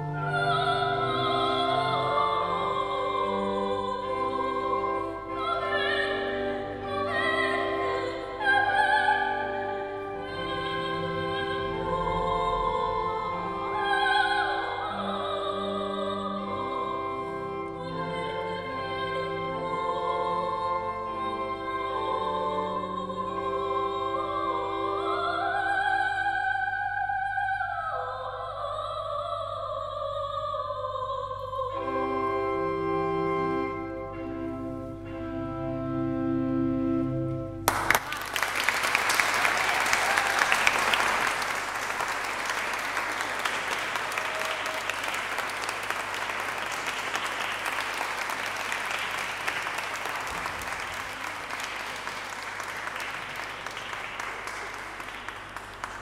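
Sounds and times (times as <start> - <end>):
strings and chamber organ: 0.0 - 25.8, 31.7 - 38.1
woman singing: 0.0 - 32.3
audience applauding: 37.6 - 56.0.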